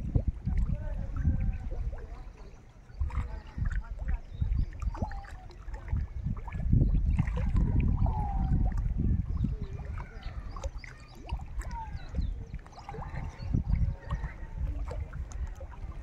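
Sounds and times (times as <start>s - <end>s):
wind buffeting microphone: 0.0s - 16.0s
birds chirping: 8.0s - 16.0s.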